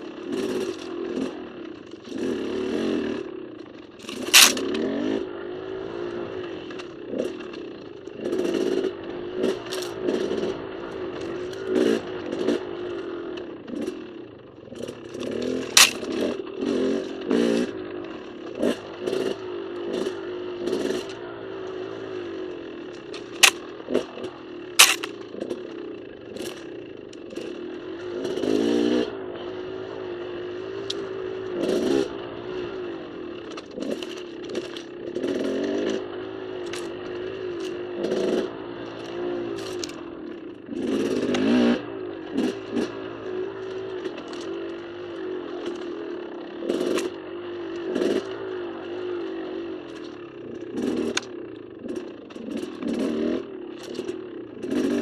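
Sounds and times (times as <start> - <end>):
dirt bike engine revving: 0.0 - 55.0
sharp clacks: 4.0 - 4.8, 15.2 - 16.3, 24.8 - 25.5.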